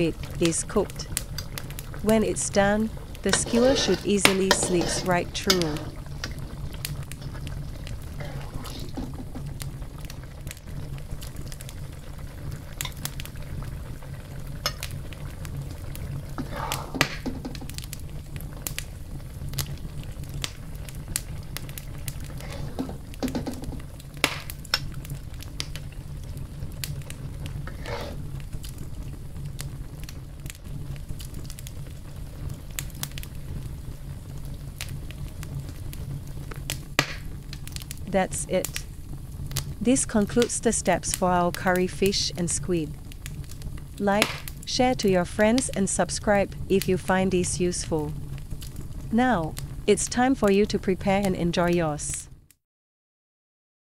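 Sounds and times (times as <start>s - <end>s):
low hum: 0.0s - 52.2s
curry simmering with pops: 0.0s - 52.6s
utensil scraping: 3.2s - 6.4s, 8.2s - 9.2s, 27.7s - 28.3s.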